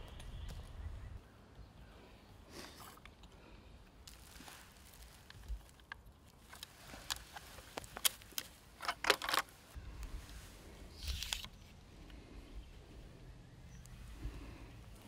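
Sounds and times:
clothing and dry leaves rustling: 0:02.5 - 0:15.0
crossbow clicks and knocks: 0:05.3 - 0:10.1.

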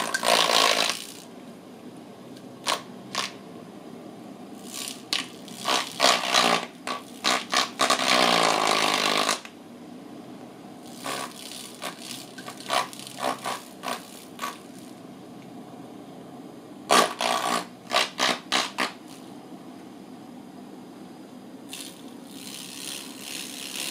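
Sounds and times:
fan motor buzz: 0:00.0 - 0:01.4, 0:04.5 - 0:09.5, 0:10.7 - 0:15.0, 0:21.5 - 0:23.9.

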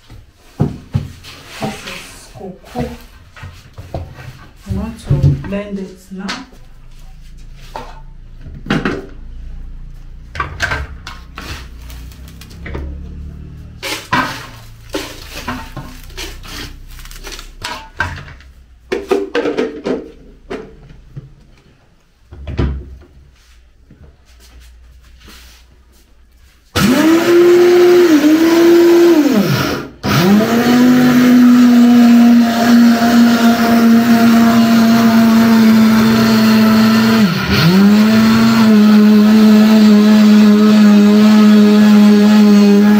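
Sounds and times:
blender grinding: 0:07.4 - 0:18.5, 0:26.7 - 0:42.9.

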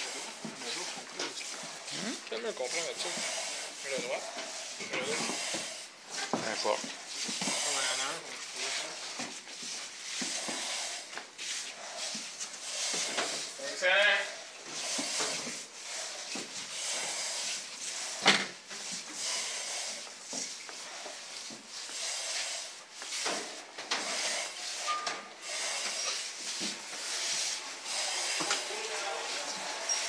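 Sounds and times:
gear rubbing and scraping: 0:00.0 - 0:14.0, 0:23.2 - 0:30.0
hissing breaths through face mask: 0:00.0 - 0:30.0.

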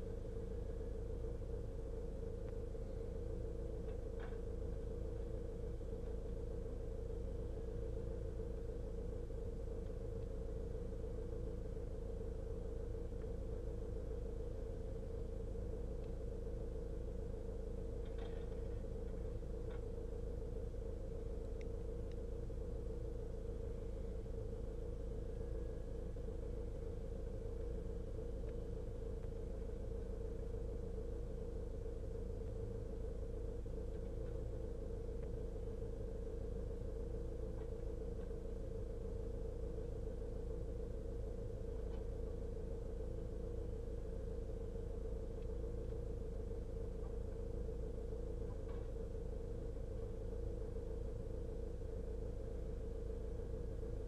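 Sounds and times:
vehicle engine idling: 0:00.0 - 0:54.0.

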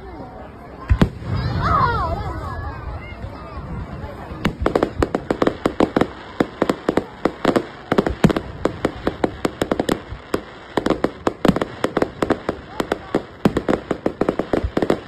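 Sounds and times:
fireworks bangs and pops: 0:00.9 - 0:01.6, 0:04.3 - 0:15.0.

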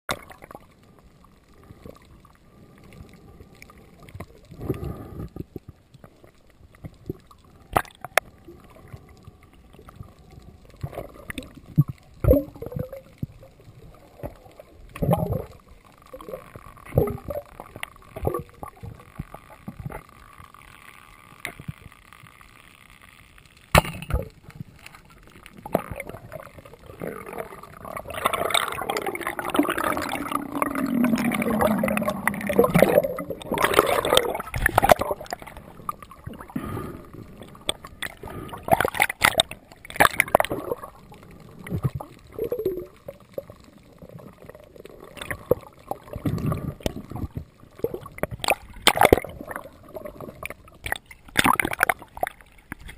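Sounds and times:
underwater rushing: 0:00.1 - 0:22.3, 0:23.8 - 0:52.9
underwater gurgling and sloshing: 0:00.1 - 0:52.9
underwater clicks and knocks: 0:23.7 - 0:24.6, 0:27.8 - 0:36.4, 0:37.6 - 0:40.7, 0:45.2 - 0:52.9
low sliding tone: 0:28.6 - 0:34.3.

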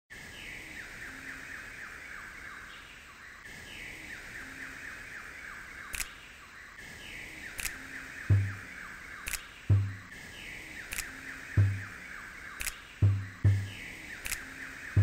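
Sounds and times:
sharp clicks: 0:05.9 - 0:06.2, 0:07.6 - 0:08.6, 0:09.2 - 0:09.9, 0:10.9 - 0:11.9, 0:12.6 - 0:14.5
low hum: 0:13.0 - 0:13.8.

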